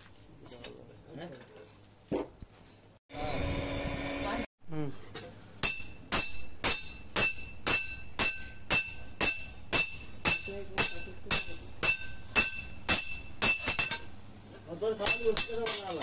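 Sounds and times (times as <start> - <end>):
hammer striking blade on anvil: 5.6 - 14.1, 15.0 - 16.0.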